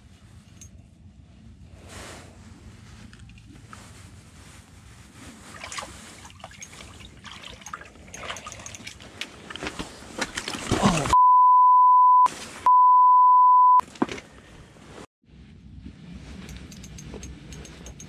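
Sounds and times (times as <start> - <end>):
clothing rustle: 1.3 - 7.6, 9.0 - 11.2
high censor bleeps: 11.2 - 13.8.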